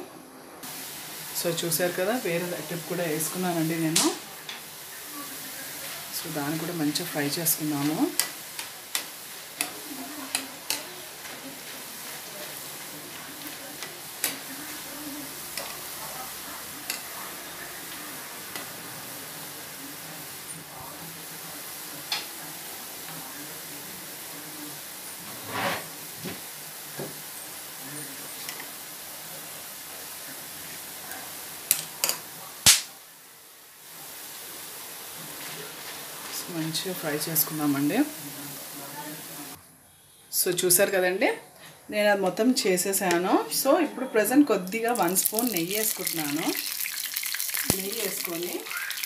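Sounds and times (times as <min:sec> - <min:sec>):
batter sizzling in hot oil: 0:00.6 - 0:39.6, 0:44.2 - 0:49.0
sharp cracks in oil: 0:32.6 - 0:32.9.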